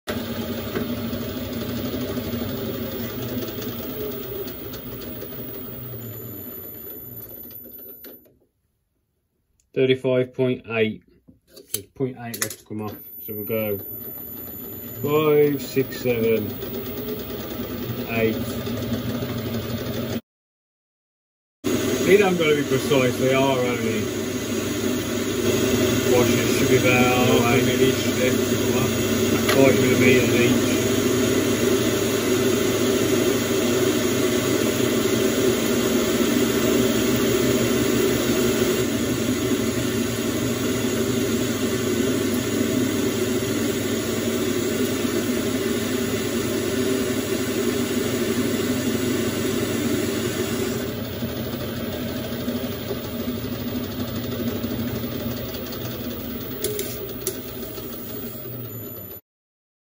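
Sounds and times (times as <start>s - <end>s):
metal lathe running: 0.1s - 8.1s, 12.9s - 20.2s, 21.7s - 59.2s
cutting tool turning metal: 55.4s - 58.9s.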